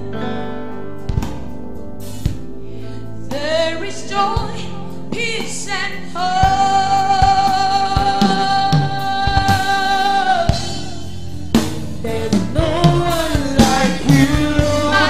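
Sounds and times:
drum kit: 0.0 - 15.0
keyboard: 0.0 - 15.0
woman singing gospel: 3.3 - 11.2, 12.0 - 15.0.

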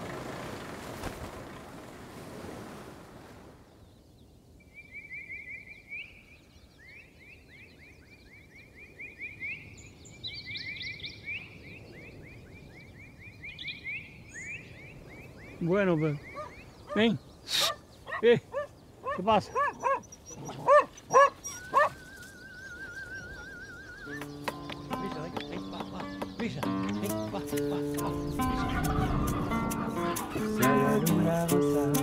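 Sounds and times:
sea surf: 0.0 - 3.6
wind noise: 11.1 - 32.0
higher calls: 15.6 - 32.0.

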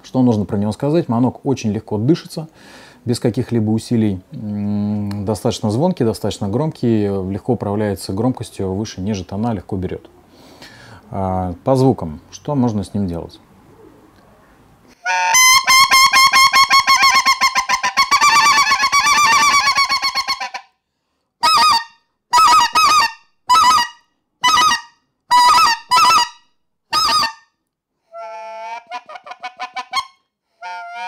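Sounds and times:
goose call honks: 26.9 - 27.4, 28.2 - 31.0.

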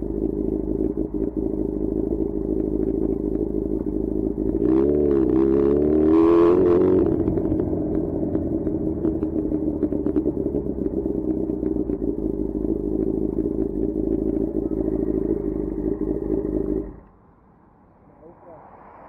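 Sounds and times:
light ticking: 0.0 - 4.6
motorcycle engine running: 0.0 - 17.1.

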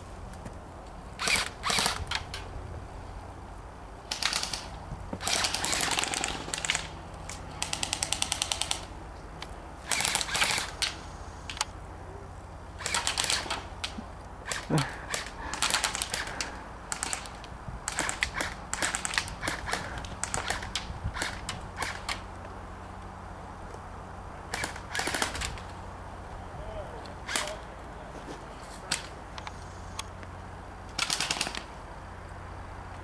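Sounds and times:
airsoft guns firing bursts: 1.2 - 2.3, 4.1 - 8.9, 9.8 - 11.0, 12.8 - 22.2, 24.5 - 25.6, 27.2 - 27.6, 30.9 - 31.7.

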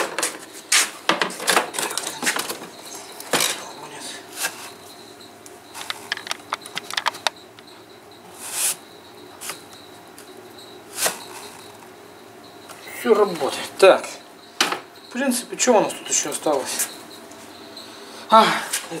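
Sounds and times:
plastic flaps clicking and knocking: 5.8 - 7.6.

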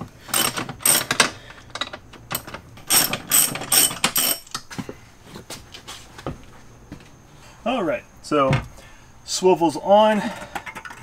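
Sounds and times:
hand ratchet clicking: 0.3 - 4.6.

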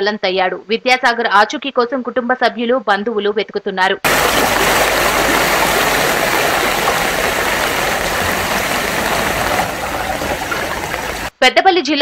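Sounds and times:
rushing water: 4.1 - 11.3.

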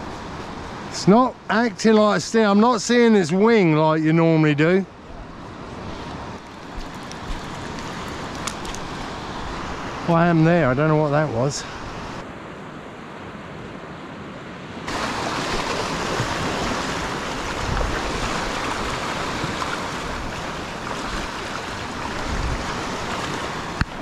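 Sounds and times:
surf washing up a beach: 0.0 - 4.4, 5.0 - 24.0
wind noise on microphone: 14.9 - 24.0.

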